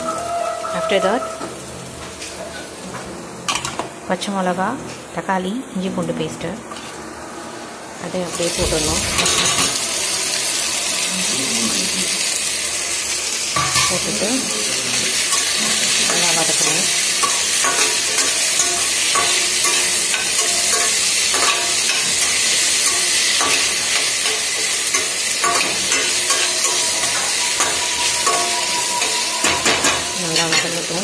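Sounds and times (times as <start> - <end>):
vegetables sizzling in hot oil: 6.8 - 31.0
metal ladle scraping pan: 8.8 - 9.9, 15.3 - 31.0.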